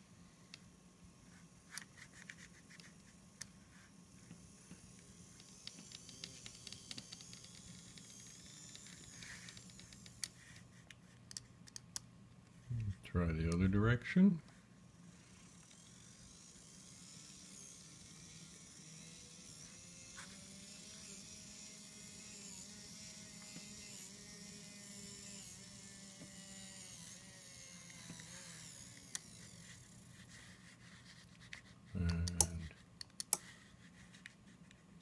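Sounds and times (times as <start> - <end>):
small electric motor whining: 0.0 - 11.2, 14.8 - 34.6
sharp clicks: 32.0 - 33.4.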